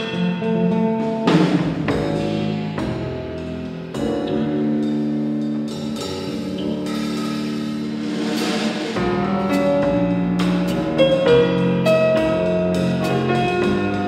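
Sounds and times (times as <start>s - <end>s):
drum kit: 0.0s - 14.0s
live band playing chords: 0.0s - 14.0s.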